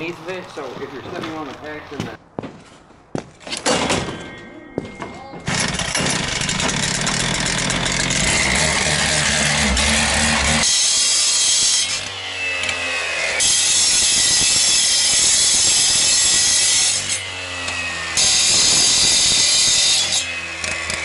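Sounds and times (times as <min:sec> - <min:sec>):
saw engine pitch gliding: 0:05.3 - 0:11.0
cut-off saw grinding steel: 0:05.4 - 0:21.0.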